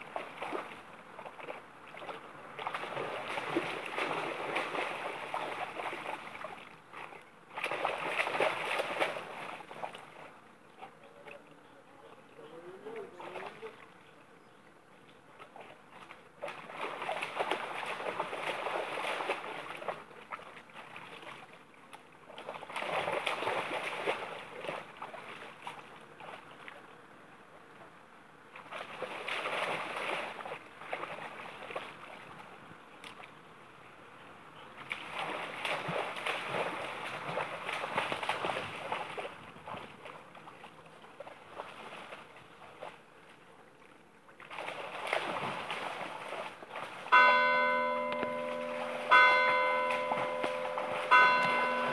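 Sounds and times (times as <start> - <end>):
dog splashing in water: 0.0 - 10.3, 15.4 - 21.6, 22.3 - 26.8, 28.6 - 32.2, 34.8 - 43.0, 44.4 - 51.9.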